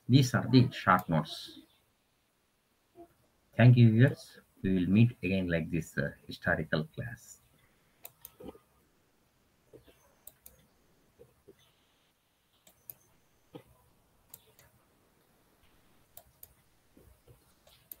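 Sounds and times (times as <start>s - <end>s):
computer mouse clicks: 8.0s - 8.6s, 9.7s - 11.7s, 12.6s - 13.7s, 14.3s - 14.8s, 16.1s - 18.0s.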